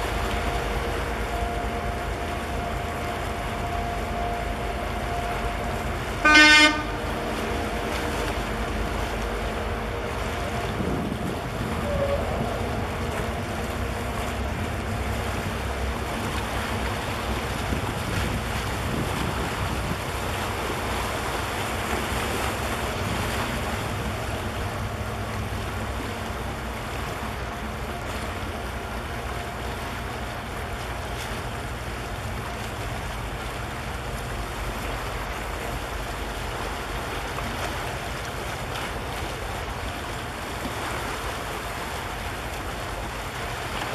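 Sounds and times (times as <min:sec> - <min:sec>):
ship horn blast: 0:00.0 - 0:33.5
ship low rumble: 0:00.0 - 0:43.9
water washing: 0:00.0 - 0:43.9
wind buffeting microphone: 0:07.2 - 0:24.8.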